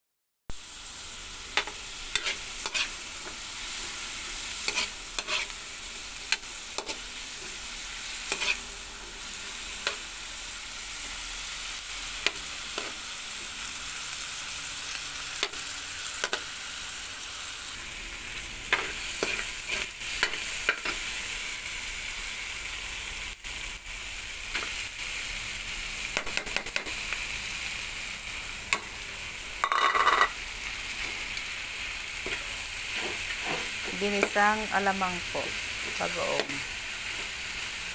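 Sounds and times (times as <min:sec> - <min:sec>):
food sizzling in oil: 0:00.5 - 0:37.9
metal spatula scraping pan: 0:01.6 - 0:03.0, 0:04.6 - 0:05.6, 0:08.2 - 0:08.7, 0:29.6 - 0:30.4, 0:32.2 - 0:34.4.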